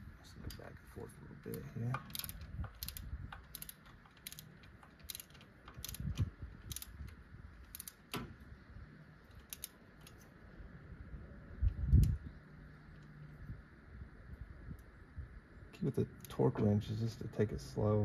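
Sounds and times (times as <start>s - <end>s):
ratchet wrench clicking: 1.5s - 8.1s, 9.3s - 10.2s.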